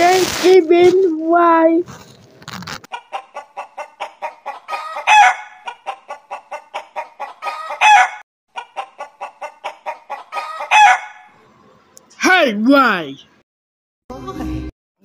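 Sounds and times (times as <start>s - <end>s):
chicken calling: 2.9s - 11.4s
chicken clucking: 2.9s - 11.4s.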